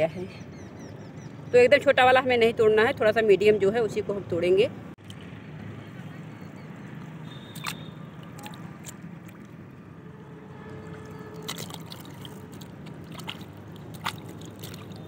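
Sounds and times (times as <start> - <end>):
hands splashing in shallow water: 7.3 - 9.6, 10.9 - 15.0
water dripping: 7.5 - 9.6, 10.8 - 15.0.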